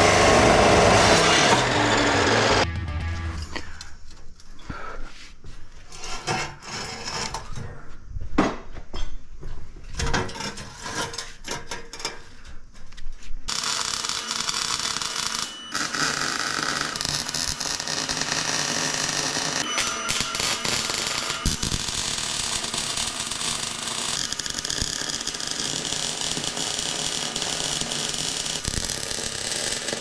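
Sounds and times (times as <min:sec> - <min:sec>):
arc welding crackling hiss: 0:13.5 - 0:30.0.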